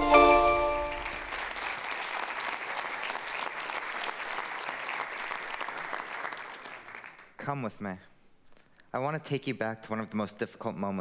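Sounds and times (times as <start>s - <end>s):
chime-like music sting: 0.0s - 1.0s
audience applauding: 0.6s - 7.4s.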